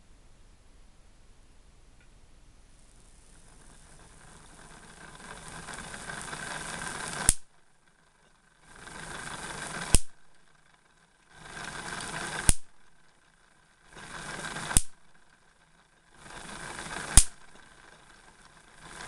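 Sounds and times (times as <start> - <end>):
sharp spark snaps: 7.3 - 7.5, 9.9 - 10.2, 12.4 - 12.8, 14.8 - 15.0, 17.1 - 17.4.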